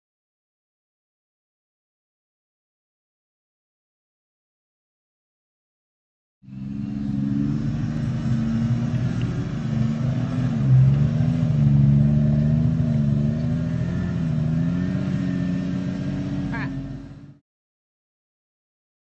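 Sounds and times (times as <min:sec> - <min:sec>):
engine running at low revs: 0:06.4 - 0:17.4.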